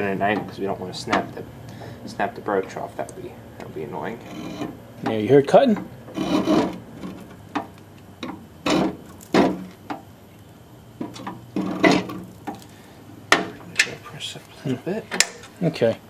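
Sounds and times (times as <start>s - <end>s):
broach cutting metal: 4.0s - 4.8s, 6.1s - 7.3s.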